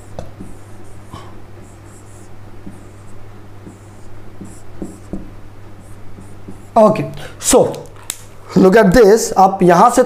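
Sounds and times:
pen scratching on surface: 0:00.0 - 0:07.1
low steady hum: 0:00.0 - 0:09.4.

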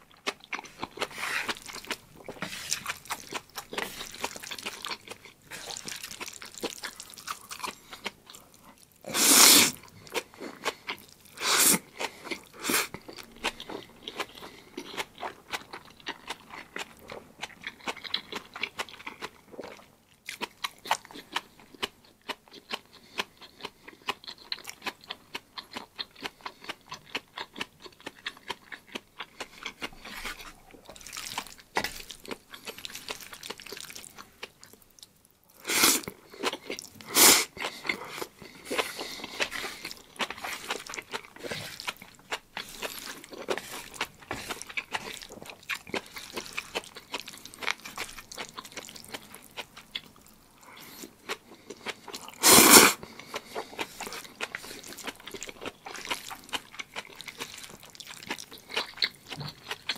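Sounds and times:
wet chewing clicks: 0:00.0 - 0:08.9, 0:35.8 - 0:59.9
slurping noodles: 0:01.0 - 0:01.8, 0:09.1 - 0:09.8, 0:11.4 - 0:11.9, 0:35.6 - 0:36.1, 0:37.0 - 0:40.8, 0:52.4 - 0:54.1.

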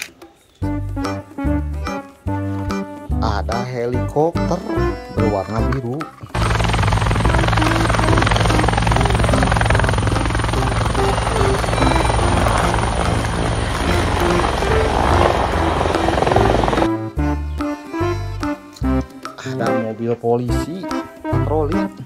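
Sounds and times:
children's tune: 0:00.0 - 0:06.2, 0:16.9 - 0:22.0
helicopter rotor and engine: 0:06.2 - 0:17.0.

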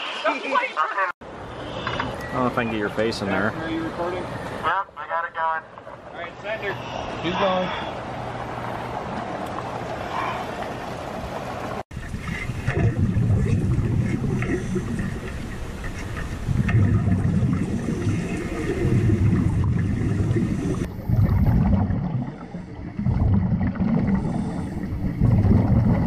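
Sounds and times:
underwater air bubbles rumbling: 0:10.7 - 0:26.0.

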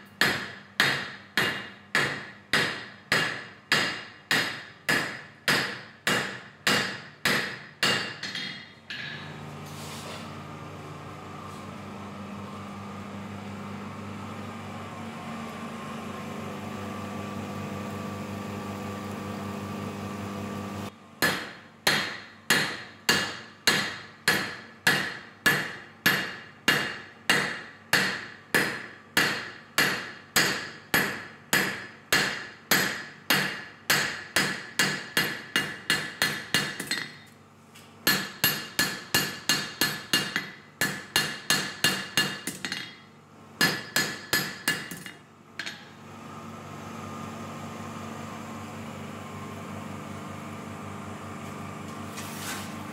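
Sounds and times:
hammer beating steel on anvil: 0:00.1 - 0:09.3, 0:21.2 - 0:37.3, 0:38.0 - 0:46.0.

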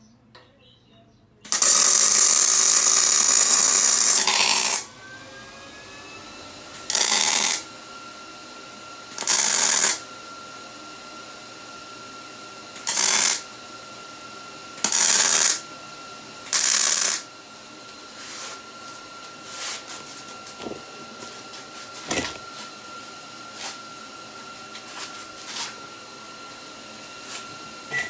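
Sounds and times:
welding arc crackling sizzle: 0:01.5 - 0:05.0, 0:06.7 - 0:07.7, 0:09.1 - 0:10.0, 0:12.7 - 0:13.5, 0:14.8 - 0:15.7, 0:16.4 - 0:17.3.

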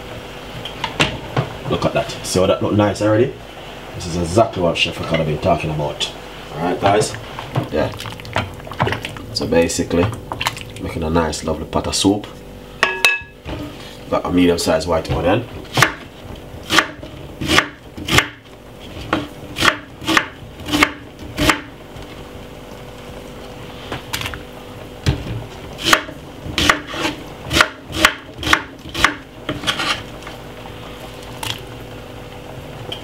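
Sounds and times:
faint steady hum: 0:00.0 - 0:33.0
knife chopping onion on wooden board: 0:15.7 - 0:18.4, 0:19.1 - 0:21.7, 0:25.8 - 0:30.0.

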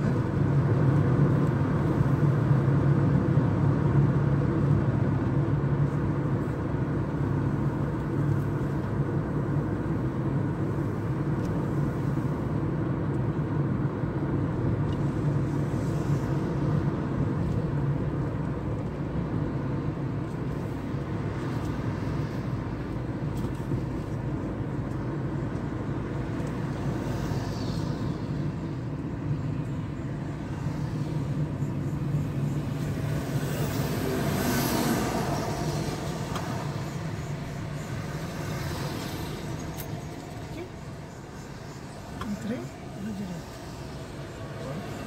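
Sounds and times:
car engine hum: 0:00.0 - 0:45.0
tyre road noise: 0:00.0 - 0:45.0.

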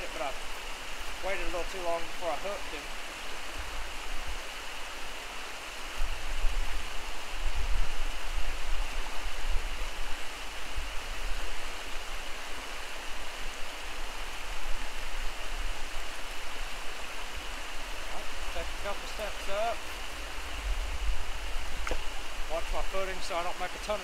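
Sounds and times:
stream running over rocks: 0:00.0 - 0:24.0
wind buffeting microphone: 0:05.8 - 0:12.4, 0:19.8 - 0:22.6.

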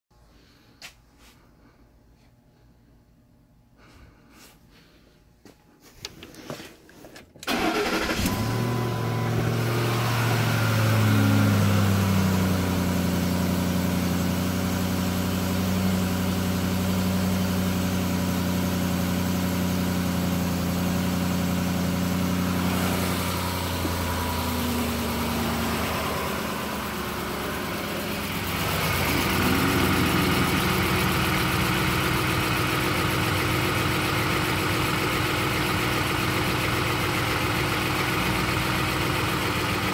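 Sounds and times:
car engine cold-starting and idling: 0:07.4 - 0:39.9
engine hiss: 0:07.5 - 0:12.5, 0:21.5 - 0:39.4.

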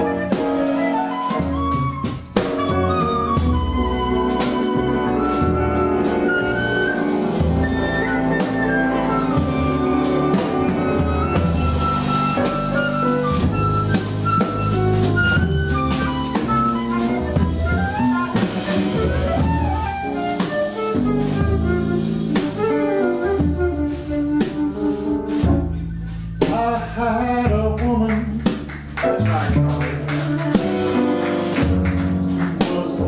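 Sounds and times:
flute solo: 0:00.0 - 0:26.9
bass: 0:00.0 - 0:33.0
drum kit: 0:00.0 - 0:33.0.

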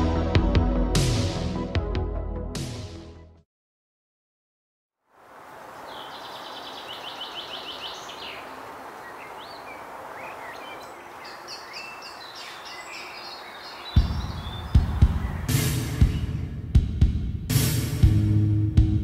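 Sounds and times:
steady background hiss: 0:05.2 - 0:13.9
songbirds calling: 0:05.4 - 0:16.8.

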